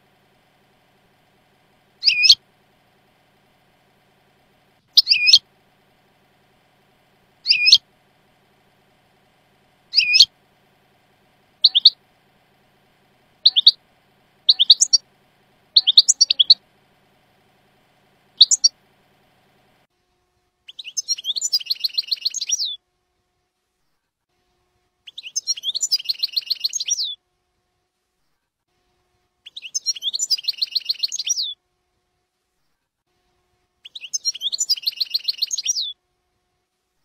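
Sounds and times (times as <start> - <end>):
rapid bird trill: 1.8 - 19.6, 20.7 - 22.8, 25.1 - 27.2, 29.5 - 31.6, 33.8 - 36.0
goldfinch twittering call notes: 2.0 - 2.4, 4.8 - 5.5, 7.4 - 7.9, 9.9 - 10.3, 11.6 - 12.0, 13.4 - 13.8, 14.4 - 15.1, 15.7 - 16.6, 18.3 - 18.8, 33.9 - 35.9.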